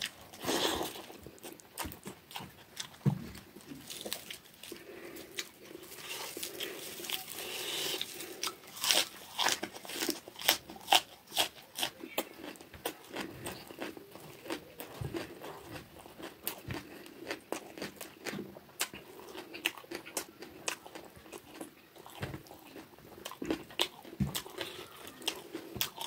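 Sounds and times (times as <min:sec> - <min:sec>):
wet crunchy chewing: 0:00.0 - 0:26.0
onion stalks rustling: 0:03.3 - 0:11.0.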